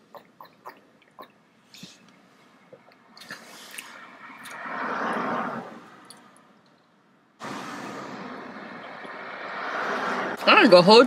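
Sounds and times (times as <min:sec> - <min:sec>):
steady traffic noise: 0:00.0 - 0:11.0
vehicle passing by: 0:03.4 - 0:06.5, 0:07.4 - 0:11.0.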